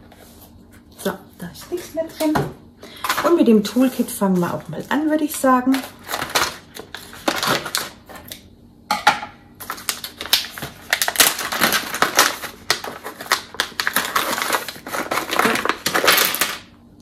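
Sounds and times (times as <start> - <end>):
crinkly pouch crackling: 5.7 - 8.4, 9.6 - 16.6.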